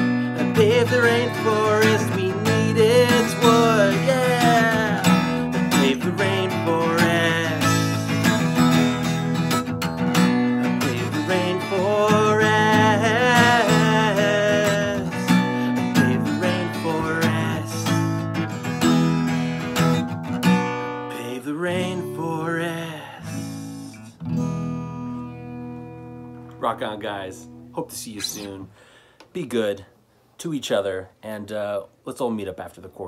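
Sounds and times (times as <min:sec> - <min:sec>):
strummed acoustic guitar: 0:00.0 - 0:28.8
man singing: 0:00.2 - 0:09.4, 0:10.6 - 0:18.1, 0:21.1 - 0:24.0.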